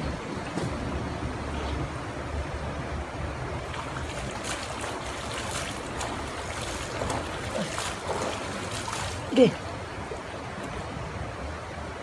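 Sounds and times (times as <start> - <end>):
shallow river water running: 0.0 - 12.0
person wading and splashing: 3.6 - 9.7.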